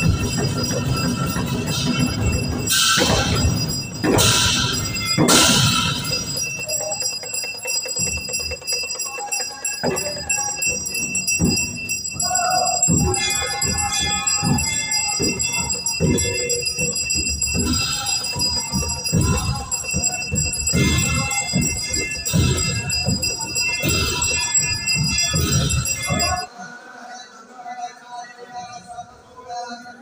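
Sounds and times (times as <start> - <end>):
temple bells ringing: 0.0 - 26.5.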